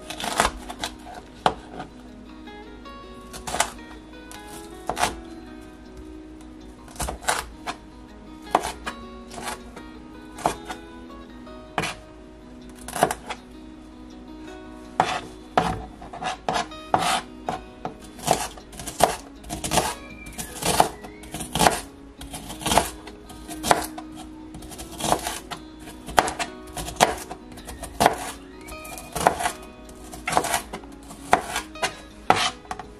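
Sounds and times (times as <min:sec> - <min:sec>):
knife chopping on cutting board: 0:04.6 - 0:05.2, 0:08.5 - 0:09.6, 0:11.8 - 0:12.0, 0:12.9 - 0:13.4, 0:15.0 - 0:23.0, 0:23.6 - 0:24.0, 0:24.6 - 0:25.4, 0:26.0 - 0:32.8.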